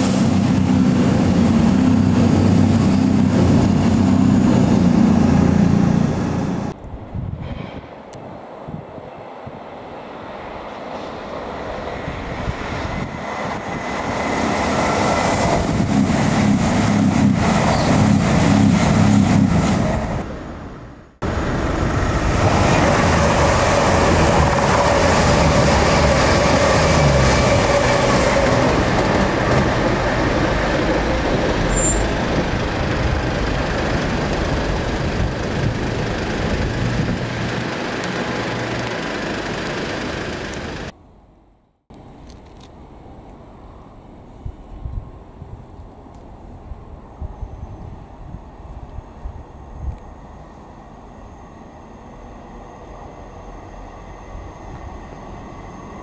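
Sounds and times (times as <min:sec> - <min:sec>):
diesel train engine rumble: 0:00.0 - 0:08.6, 0:10.3 - 0:41.0, 0:42.0 - 0:56.0
train wheel noise: 0:10.4 - 0:41.0.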